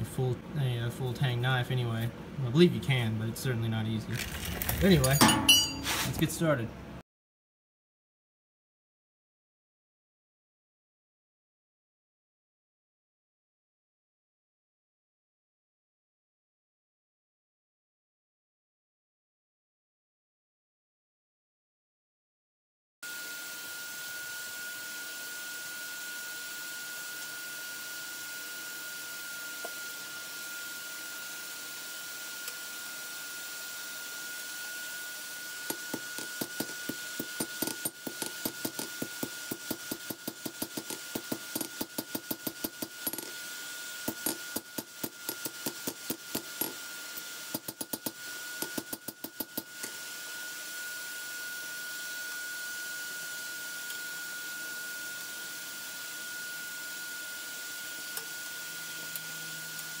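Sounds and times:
hammer ringing on steel: 5.2 - 5.9.

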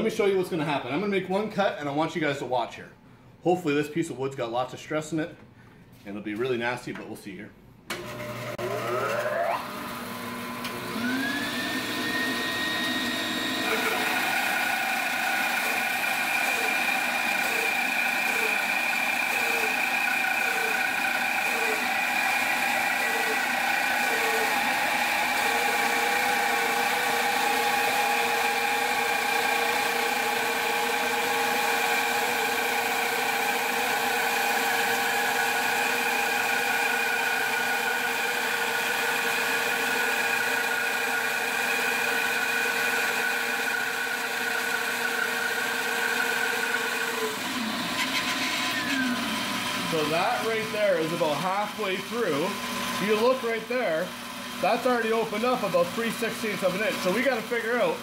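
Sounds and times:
bandsaw running: 7.9 - 58.0.

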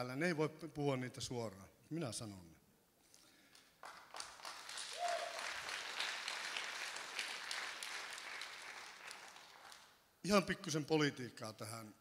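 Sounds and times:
audience applause: 3.8 - 9.9.

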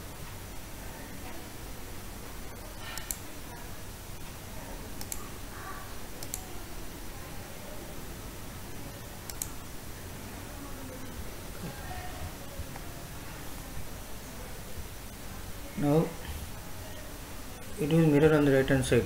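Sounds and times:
room noise hum and hiss: 0.0 - 19.0
computer mouse clicking: 2.7 - 3.3, 5.0 - 5.3, 6.2 - 6.5, 9.3 - 9.6.

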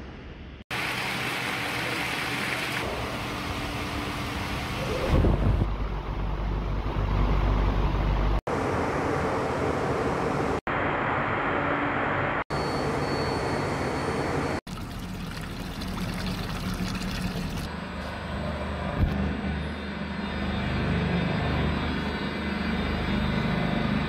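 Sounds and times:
oil pouring into a bucket: 14.7 - 17.7
oil running: 14.7 - 17.7
water splashing: 14.7 - 17.7
machinery drone: 17.7 - 24.0.

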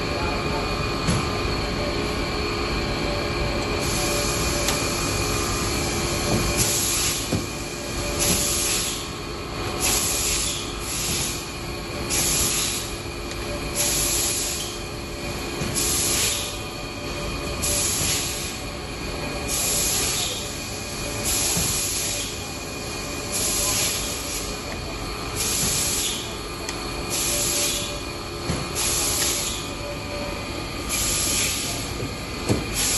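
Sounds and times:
machinery humming: 0.0 - 32.9
machine hiss: 5.8 - 9.1, 9.7 - 13.0, 13.7 - 14.8, 15.8 - 16.6, 17.6 - 18.6, 19.5 - 24.6, 25.3 - 26.3, 27.1 - 28.0, 30.8 - 31.9, 32.7 - 32.9.

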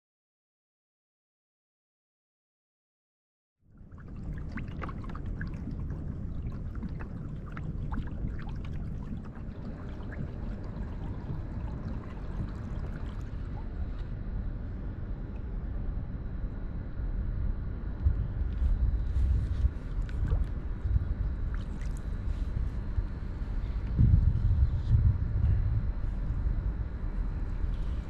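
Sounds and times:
small water splashes and drips: 3.8 - 14.1, 19.1 - 20.6, 21.4 - 22.8
water lapping against kayak hull: 3.8 - 14.2, 18.4 - 24.8
steady low rumble: 3.8 - 28.0.

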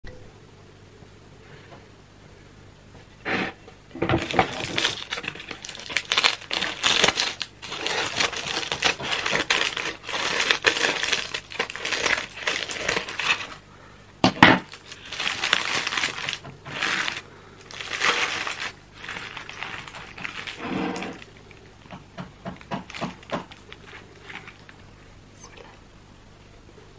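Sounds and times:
aluminium foil crinkling: 4.0 - 13.7, 14.6 - 24.8
baking paper rustling: 4.0 - 13.7, 14.4 - 24.9
scissors cutting foil: 4.2 - 13.6, 14.6 - 21.3.

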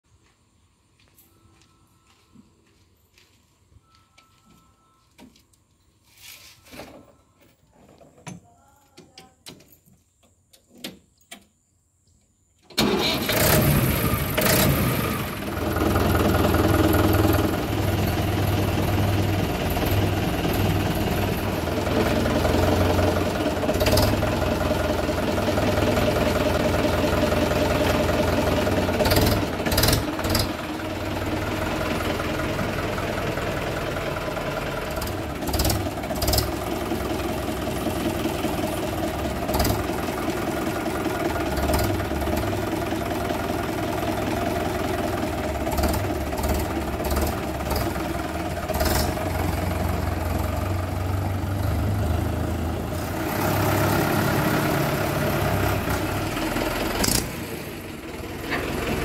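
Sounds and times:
tractor diesel engine running: 12.8 - 59.0.

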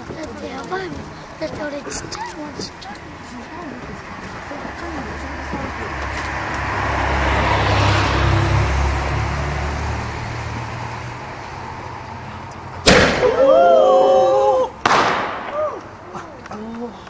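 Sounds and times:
car passing: 0.4 - 17.0
firework bang: 12.8 - 13.7, 14.8 - 15.9
people crying out: 13.2 - 14.8, 15.5 - 16.4.

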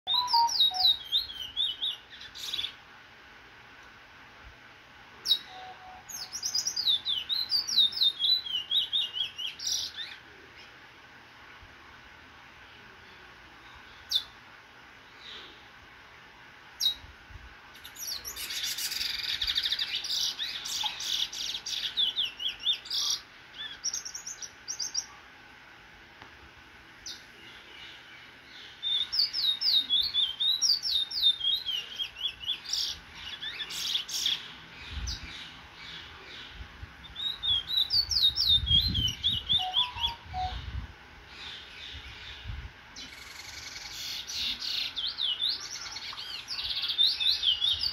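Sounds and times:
finch singing whistled notes: 0.1 - 2.8, 5.3 - 10.2, 28.6 - 35.3, 37.0 - 40.7, 43.0 - 47.9.

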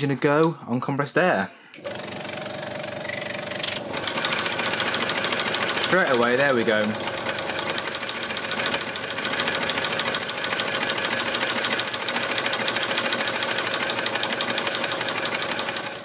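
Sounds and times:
model steam engine chuffing: 3.9 - 16.0
high squeaks: 4.0 - 4.8, 7.8 - 9.4, 10.0 - 10.7, 11.7 - 12.3.

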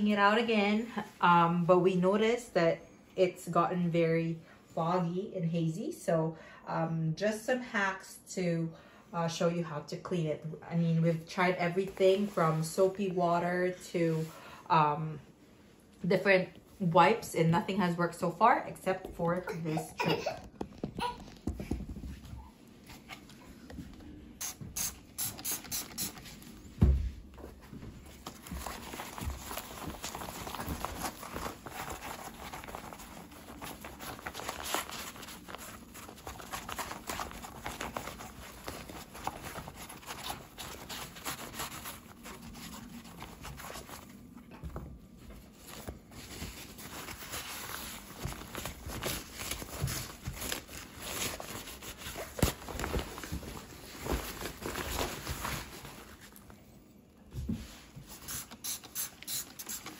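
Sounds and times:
sponge scrubbing plastic: 28.4 - 43.9.

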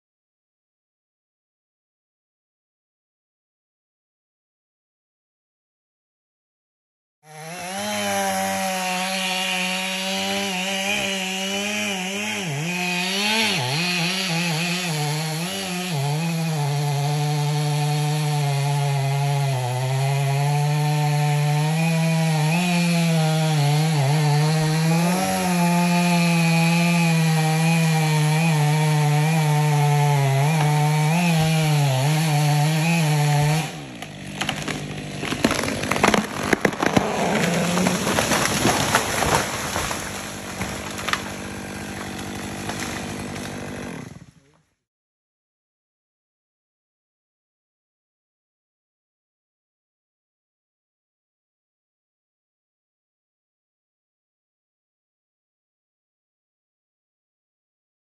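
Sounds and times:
chainsaw cutting: 7.2 - 44.7
tree cracking and falling: 7.6 - 44.3.

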